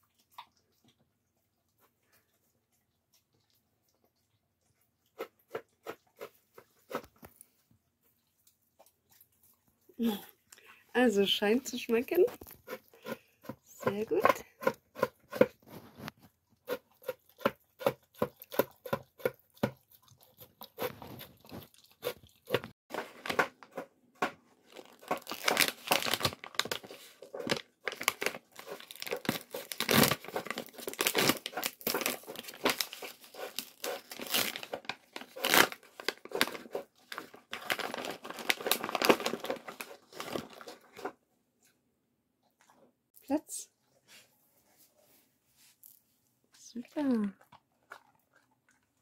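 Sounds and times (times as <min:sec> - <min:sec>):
dog eating from plastic bowl: 0:00.0 - 0:10.5, 0:11.2 - 0:41.2, 0:47.0 - 0:49.0
paper bag crinkling and tearing: 0:24.7 - 0:41.1.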